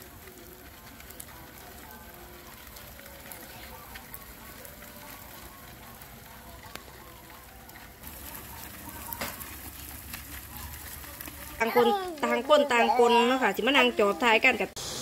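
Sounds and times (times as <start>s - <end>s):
crickets rustling in plastic bucket: 8.0s - 11.7s.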